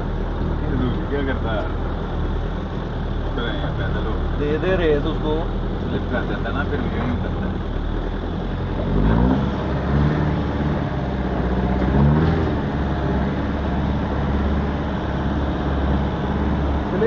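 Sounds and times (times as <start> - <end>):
off-road vehicle engine revving: 0.0 - 17.0.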